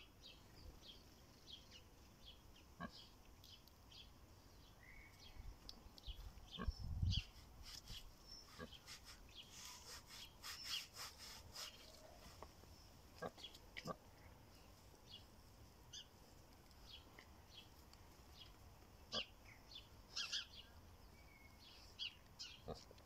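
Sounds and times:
pig rooting in soil: 1.2 - 3.9, 5.2 - 19.5, 22.0 - 23.0.

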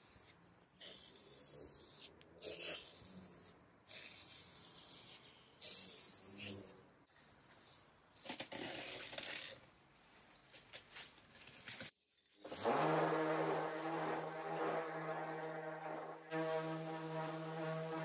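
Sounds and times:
spray paint can hissing: 0.0 - 6.7, 12.5 - 18.0.

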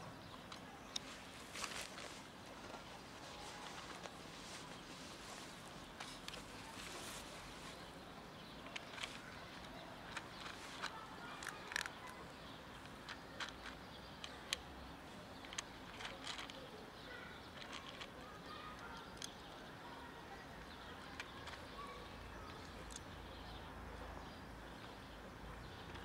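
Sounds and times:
faint outdoor background noise: 0.0 - 26.0
cat crunching dry kibble: 8.6 - 14.5, 15.4 - 16.7, 17.5 - 19.4.

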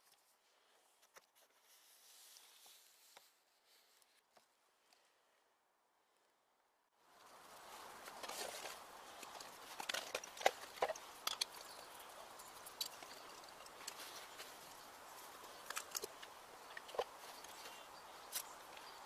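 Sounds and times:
faint outdoor hiss: 0.0 - 19.0
mug and pot clicking and knocking: 9.2 - 14.8.

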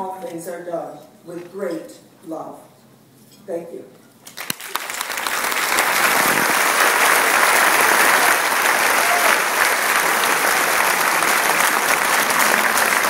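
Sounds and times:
audience applauding: 4.4 - 13.0.

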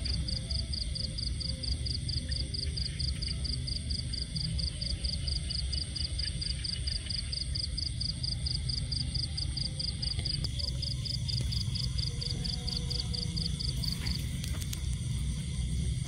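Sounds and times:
cricket chirping: 0.0 - 16.0
low steady rumble: 0.0 - 16.0.

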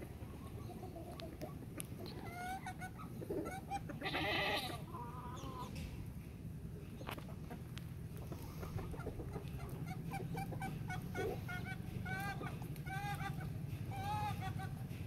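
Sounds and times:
hens clucking: 0.0 - 15.0
wavering livestock call: 3.8 - 4.9.

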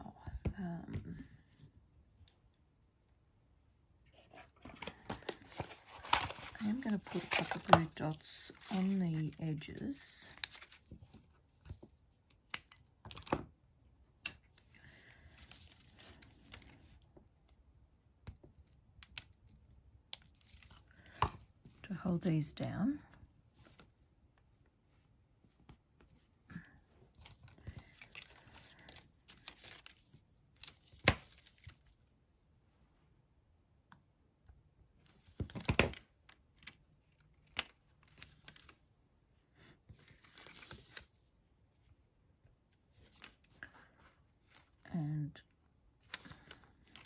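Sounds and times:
paper rustling and crinkling: 4.1 - 12.0, 14.8 - 17.0, 26.0 - 32.0, 39.9 - 42.0.

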